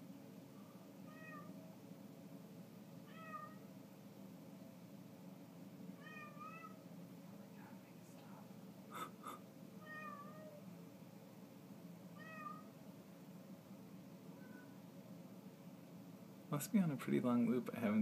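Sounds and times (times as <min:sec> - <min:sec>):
faint steady hum: 0:00.0 - 0:18.0
cat meowing: 0:01.1 - 0:01.6, 0:03.0 - 0:03.7, 0:06.0 - 0:06.8, 0:09.8 - 0:10.6, 0:12.2 - 0:12.7, 0:14.4 - 0:14.8.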